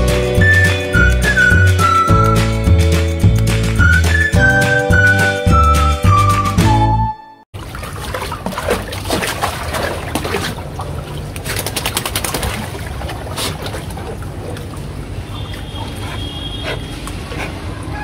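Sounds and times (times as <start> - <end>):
water sloshing and splashing: 7.6 - 18.0.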